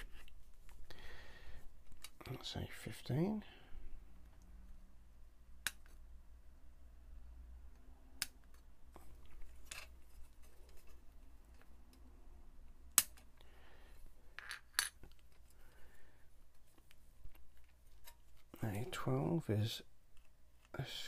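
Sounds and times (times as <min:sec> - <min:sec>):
plastic runners rustling: 0:08.5 - 0:11.8.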